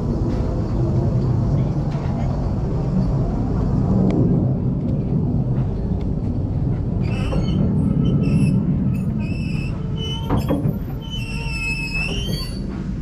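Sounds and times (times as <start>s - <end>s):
railway carriage rumbling: 0.0s - 13.0s
train knocks: 5.4s - 13.0s
high metallic squeal: 7.0s - 12.8s.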